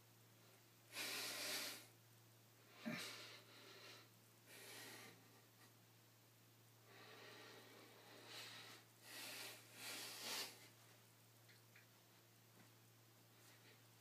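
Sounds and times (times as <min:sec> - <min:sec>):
faint steady hum: 0:00.0 - 0:14.0
man breathing in airy puffs: 0:00.9 - 0:01.9, 0:06.9 - 0:10.8.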